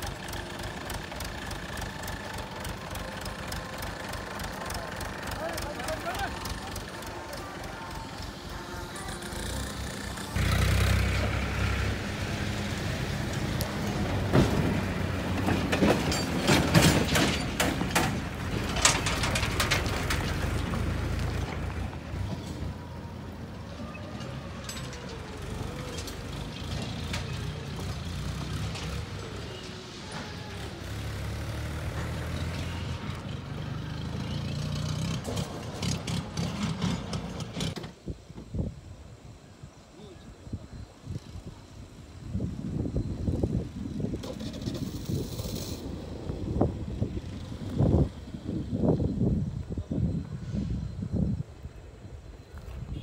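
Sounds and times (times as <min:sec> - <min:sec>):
engine running: 0:00.0 - 0:37.8
metallic clanks and clatter: 0:14.3 - 0:20.8.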